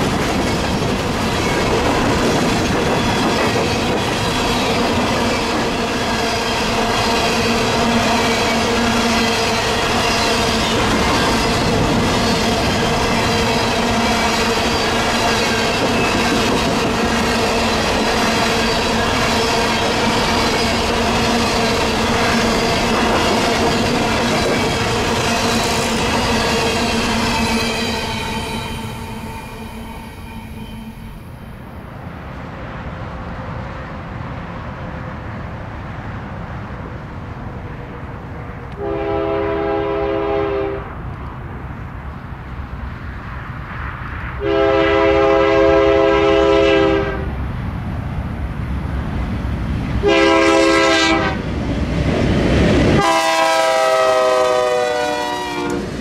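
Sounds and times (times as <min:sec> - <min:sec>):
train rumbling: 0:00.0 - 0:56.0
train air horn blasts: 0:26.5 - 0:31.3, 0:38.8 - 0:40.9, 0:44.4 - 0:47.3, 0:50.0 - 0:51.4, 0:53.0 - 0:55.9
steady pitched tone: 0:27.0 - 0:31.6.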